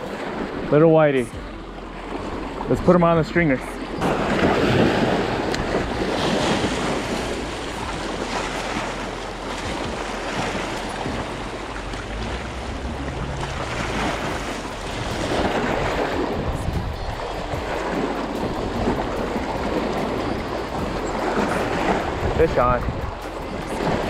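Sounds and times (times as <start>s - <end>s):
water splashing against rocks: 0.0s - 24.0s
wind on microphone: 3.8s - 24.0s.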